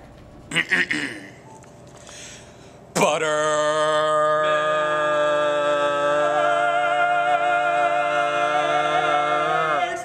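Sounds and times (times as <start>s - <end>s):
man singing a long held note: 3.0s - 10.0s.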